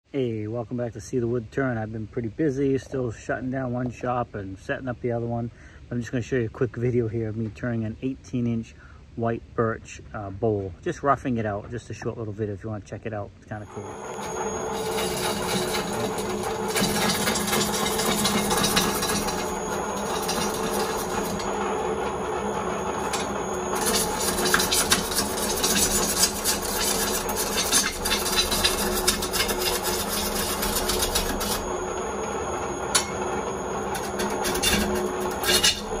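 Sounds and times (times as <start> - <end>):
wood lathe humming: 13.7 - 36.0
gouge scraping wood: 14.1 - 31.9.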